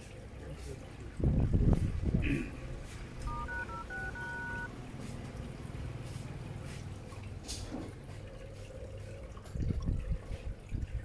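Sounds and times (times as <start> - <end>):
phone dial-pad beeps: 3.2 - 4.7.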